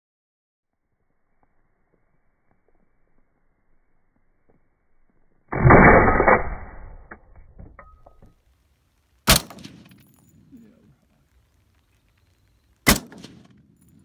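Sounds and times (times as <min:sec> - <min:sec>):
suppressed rifle shots: 0:05.5 - 0:07.2, 0:09.3 - 0:10.1, 0:12.9 - 0:13.9.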